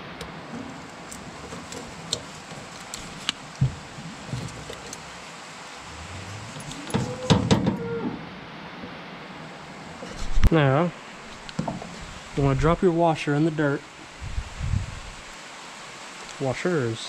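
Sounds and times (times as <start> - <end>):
metal-on-metal clanks: 6.4 - 7.9.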